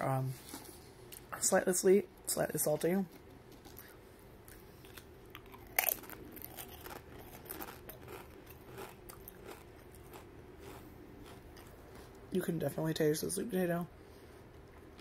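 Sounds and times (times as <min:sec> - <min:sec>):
crisp crunching while chewed: 0:03.1 - 0:12.2.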